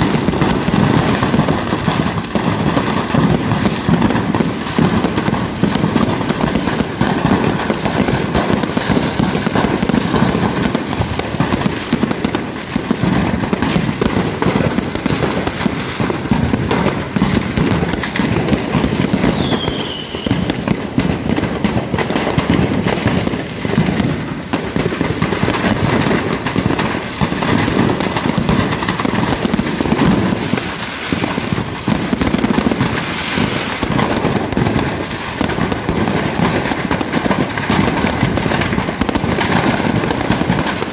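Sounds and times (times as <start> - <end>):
fireworks bangs and crackles: 0.0 - 40.9
falling whistle: 19.0 - 20.4.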